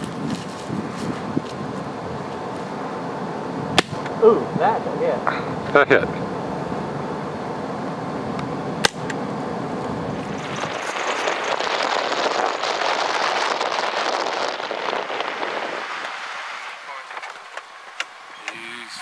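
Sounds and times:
vehicle engine running: 0:06.2 - 0:15.4
hissing rush: 0:09.4 - 0:19.0.

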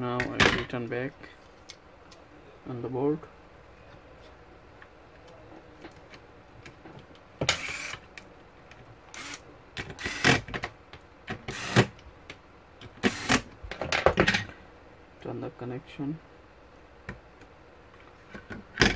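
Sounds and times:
electric screwdriver bursts: 0:07.5 - 0:08.0, 0:09.1 - 0:09.4, 0:10.0 - 0:10.4, 0:11.5 - 0:11.9, 0:13.0 - 0:13.5.

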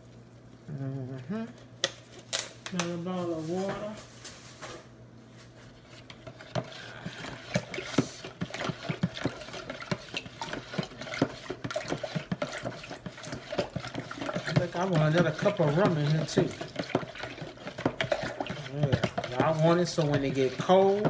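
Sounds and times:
liquid sloshing in pitcher: 0:05.7 - 0:21.0
utensil knocking plastic pitcher: 0:07.5 - 0:21.0.

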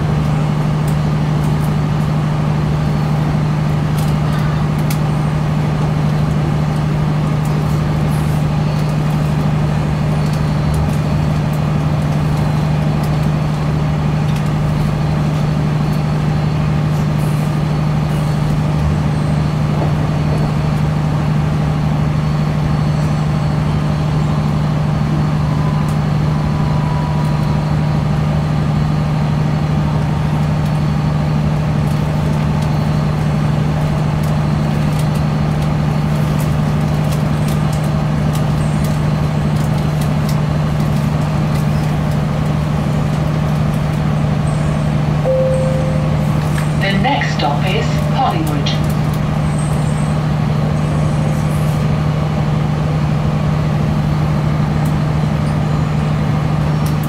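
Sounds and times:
train cabin drone: 0:00.0 - 0:37.2, 0:44.5 - 0:57.0
air-conditioning rushing: 0:00.0 - 0:57.0.

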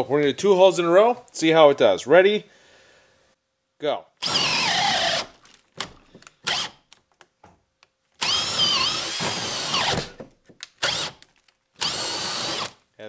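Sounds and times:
power drill motor whine: 0:04.2 - 0:05.3, 0:06.4 - 0:06.8, 0:08.2 - 0:10.2, 0:10.8 - 0:11.2, 0:11.8 - 0:12.8
drill trigger blips: 0:04.2 - 0:06.8, 0:08.2 - 0:10.2, 0:10.8 - 0:11.2, 0:11.8 - 0:12.8.

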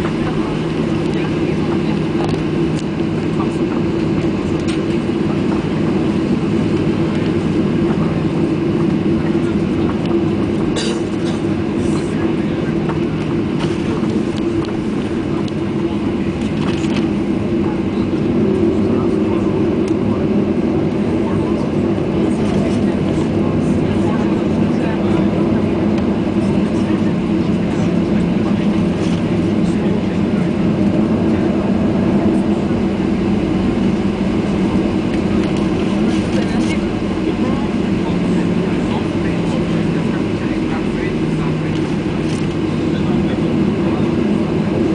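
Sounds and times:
jet engines humming: 0:00.0 - 0:44.9.

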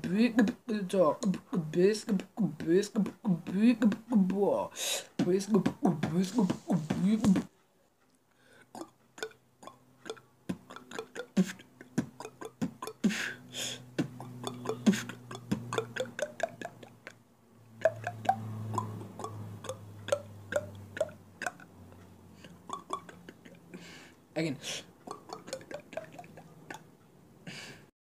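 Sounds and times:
beatboxing clicks over buzzing hum: 0:00.0 - 0:07.5, 0:08.7 - 0:27.0.

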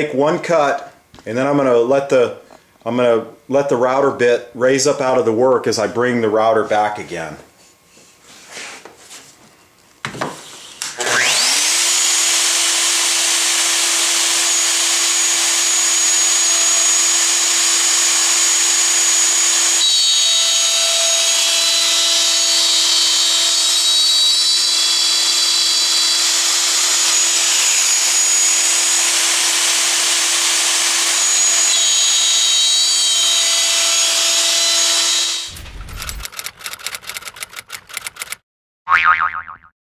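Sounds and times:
router whining while cutting wood: 0:10.5 - 0:36.5.

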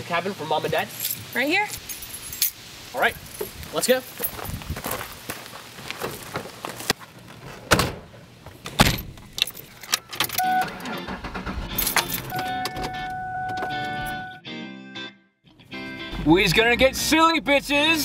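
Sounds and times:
car keys jangling: 0:00.9 - 0:02.6, 0:08.7 - 0:14.3
car doors shutting: 0:07.4 - 0:14.3
car engine starting: 0:09.2 - 0:14.3, 0:16.1 - 0:18.0.

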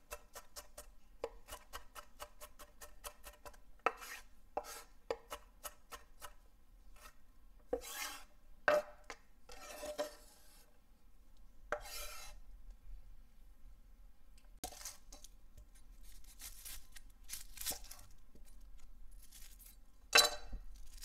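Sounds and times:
blade scraping across board: 0:03.9 - 0:04.9, 0:07.7 - 0:08.3, 0:09.5 - 0:10.7, 0:11.7 - 0:12.4.

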